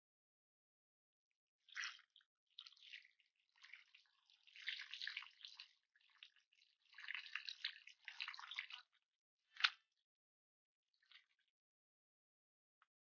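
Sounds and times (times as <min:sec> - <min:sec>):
water from hose splashing: 0:01.7 - 0:08.8.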